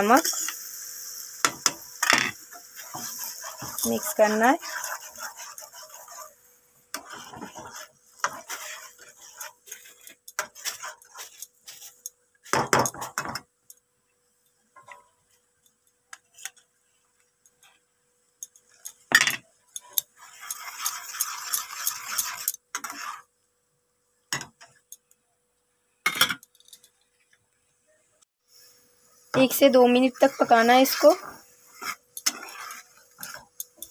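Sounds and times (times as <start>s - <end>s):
spatula scraping frying pan: 0.1s - 13.4s, 18.6s - 23.3s, 29.4s - 33.9s.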